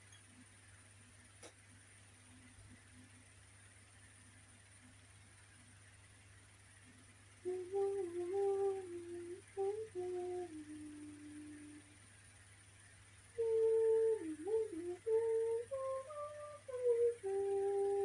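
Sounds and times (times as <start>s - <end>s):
woman humming a slow tune: 7.5s - 12.0s, 13.4s - 18.0s.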